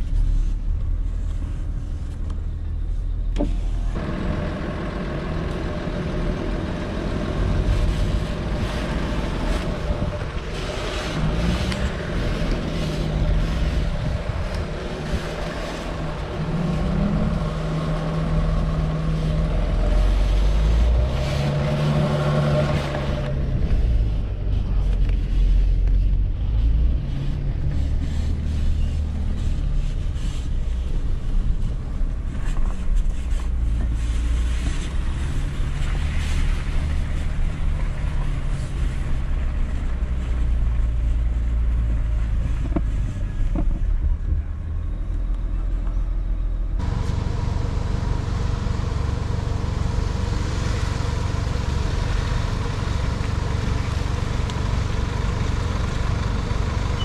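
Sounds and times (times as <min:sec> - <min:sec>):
van diesel engine drone: 0:00.0 - 0:57.0
wind on microphone: 0:07.5 - 0:17.9.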